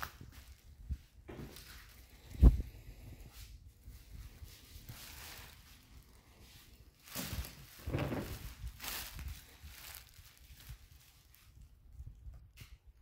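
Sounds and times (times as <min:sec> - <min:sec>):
plastic garbage bag rustling: 0:04.0 - 0:12.1.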